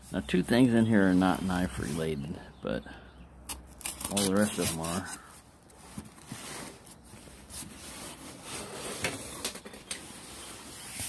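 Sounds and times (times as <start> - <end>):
cardboard box scraping on table: 5.8 - 11.0.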